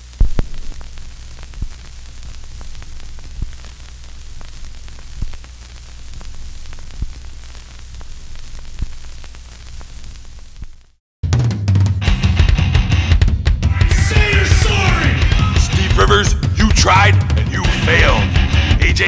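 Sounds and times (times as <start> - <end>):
low hum: 0.0 - 11.0
vinyl crackle and hiss: 0.0 - 11.0
vinyl record pop: 0.0 - 11.0, 12.1 - 19.0.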